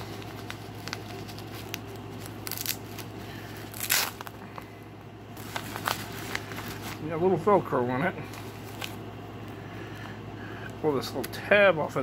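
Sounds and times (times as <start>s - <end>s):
bean bag crinkling: 0.0s - 7.4s.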